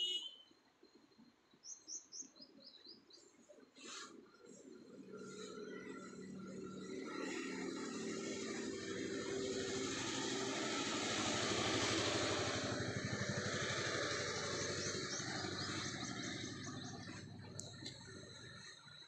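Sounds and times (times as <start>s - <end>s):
vehicle engine running: 4.5s - 19.0s.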